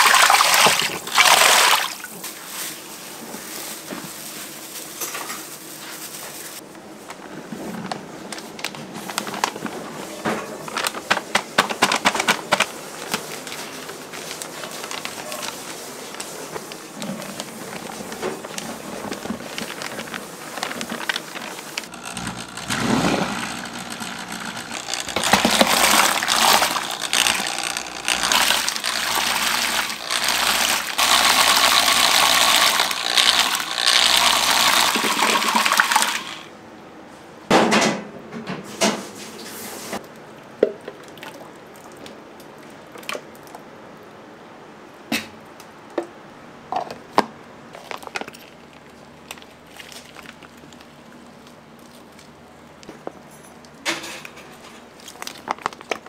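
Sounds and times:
water running hard: 0.0 - 2.1, 24.3 - 36.4.

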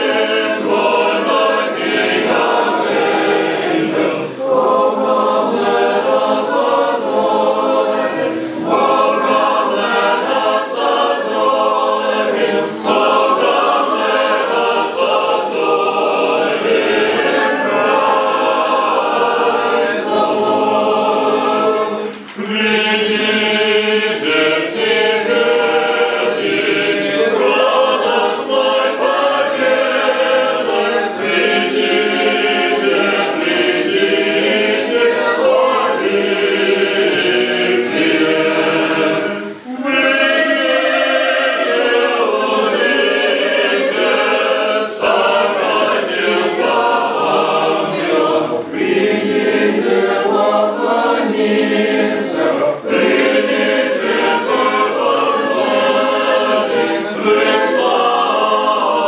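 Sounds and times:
group singing unaccompanied chant: 0.0 - 59.0.

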